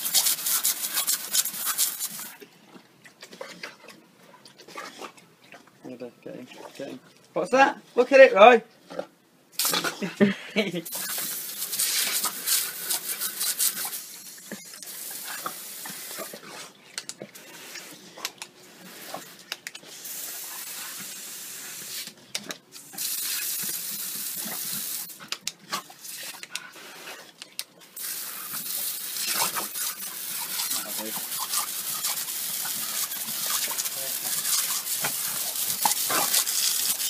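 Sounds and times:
hose water spattering on tiles: 0.0 - 2.4, 9.6 - 10.1, 10.8 - 37.0.

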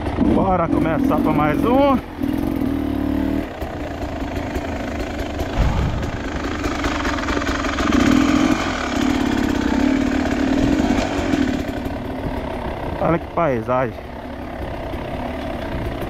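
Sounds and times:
dirt bike engine running: 0.0 - 16.0
low thump: 5.5 - 7.3.

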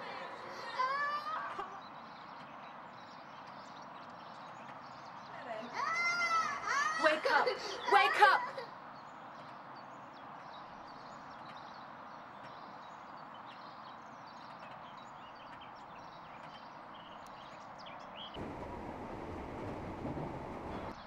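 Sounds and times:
small birds chirping: 0.2 - 21.0
moving train rumble: 14.4 - 21.0
steady hiss: 18.4 - 21.0.

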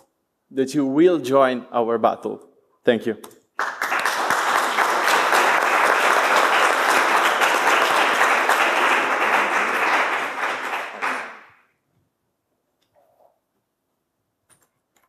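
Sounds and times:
audience applauding: 3.6 - 11.6.

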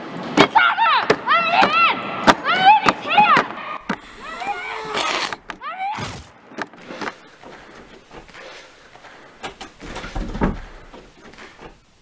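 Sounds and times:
man sniffing and breathing: 3.9 - 5.4, 6.8 - 9.5.

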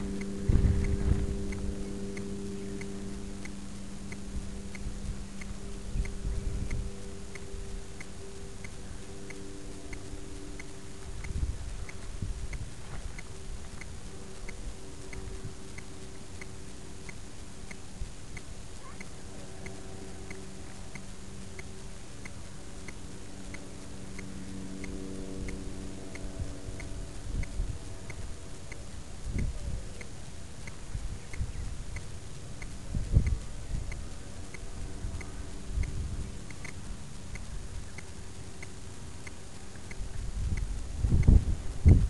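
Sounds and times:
low rumbles on microphone: 0.0 - 7.0, 10.9 - 15.8, 32.7 - 38.0, 39.8 - 42.0
faint regular ticking: 0.0 - 42.0
faint steady hum: 0.0 - 42.0.

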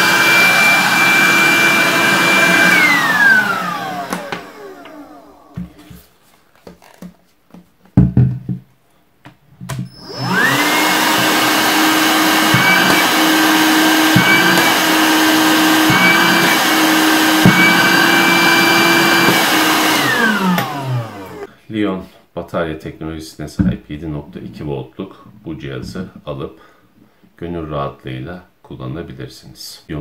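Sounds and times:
handheld vacuum cleaner whine: 0.0 - 5.9, 9.8 - 21.5.

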